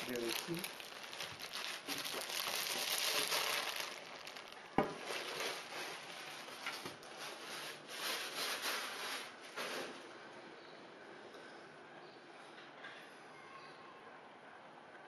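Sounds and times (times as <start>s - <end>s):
plastic packaging rustling: 0.0s - 10.0s.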